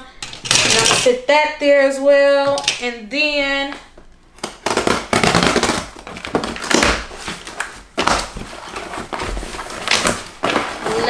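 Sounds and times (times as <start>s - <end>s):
hands rummaging in cardboard box: 5.6s - 11.0s.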